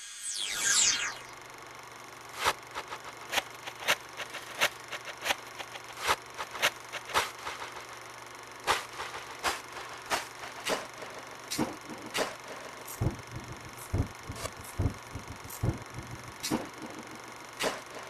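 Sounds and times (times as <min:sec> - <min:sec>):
faint low hum: 0:00.6 - 0:18.0.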